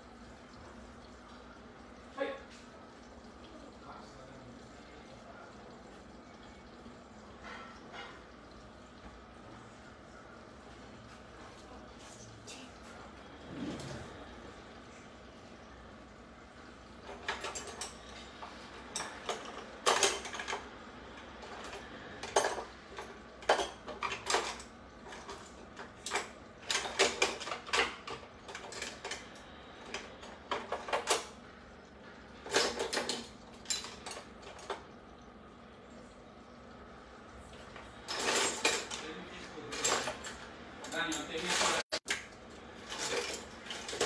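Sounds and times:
plates and cutlery clattering: 7.3s - 8.4s, 17.0s - 31.4s, 32.4s - 34.9s, 37.8s - 39.0s, 39.6s - 44.0s.

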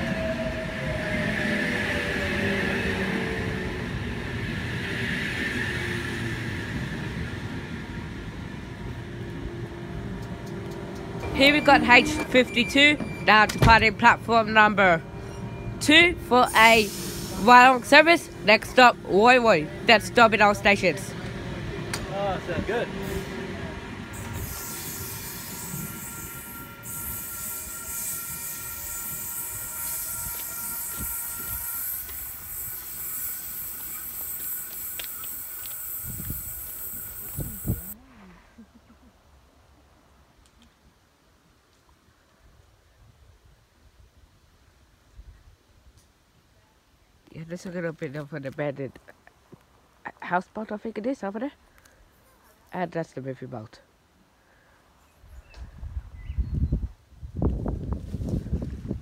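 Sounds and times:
wheels rumbling on rail: 0.0s - 38.0s
high hiss: 16.6s - 17.8s, 24.2s - 38.0s
electric train motor whine: 18.2s - 38.0s.

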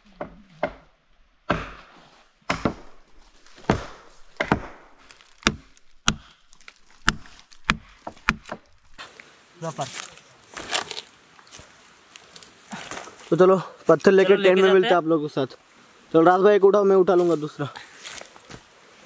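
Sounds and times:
dry branches cracking: 3.4s - 9.0s, 9.8s - 13.4s
rustling: 5.0s - 14.1s.

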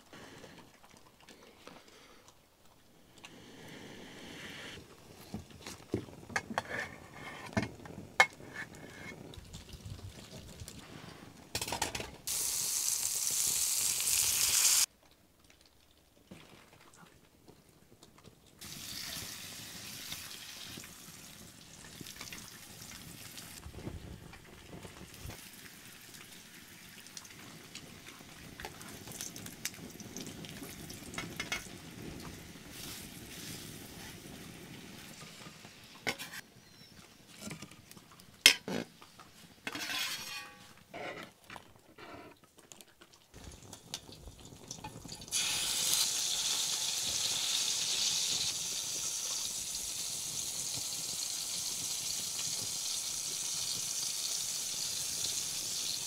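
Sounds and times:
food sizzling in oil: 12.2s - 14.9s, 18.6s - 23.6s, 24.5s - 36.4s, 43.4s - 56.0s
knife scraping and clinking on pan: 39.7s - 41.3s.

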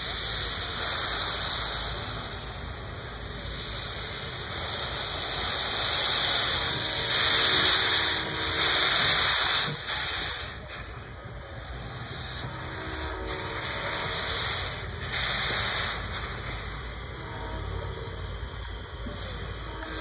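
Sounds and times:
steam hissing: 0.0s - 20.0s.

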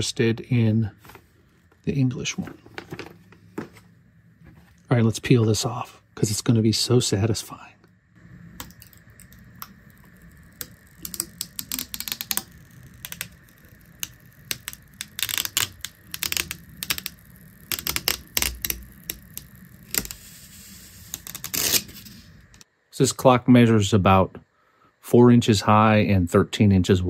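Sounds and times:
plastic film peeling and crackling: 8.6s - 22.6s.

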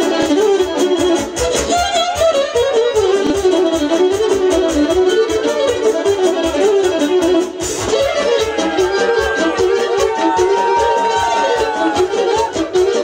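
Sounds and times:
keyboard lead melody: 0.0s - 13.0s
steady drum beat: 7.4s - 13.0s.

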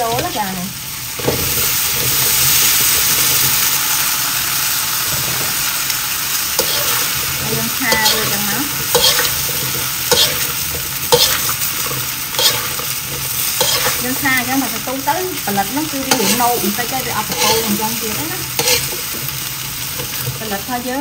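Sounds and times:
food sizzling in a wok: 0.0s - 21.0s
metal ladle scraping a wok: 6.6s - 14.2s, 15.9s - 20.4s.

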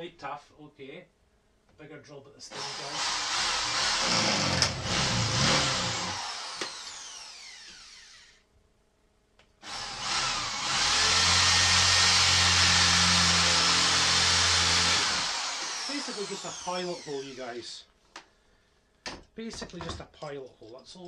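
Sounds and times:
electric drill boring into wood: 2.5s - 8.4s, 9.6s - 17.6s.

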